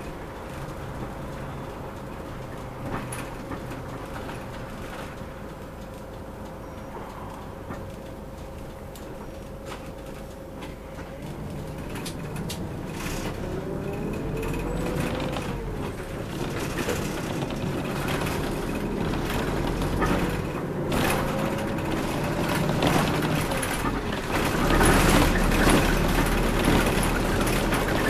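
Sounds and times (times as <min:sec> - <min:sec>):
bus engine pulling away: 0:00.0 - 0:08.3, 0:09.0 - 0:28.0
engine whine: 0:00.0 - 0:28.0
cabin rattles and clicks: 0:07.3 - 0:28.0.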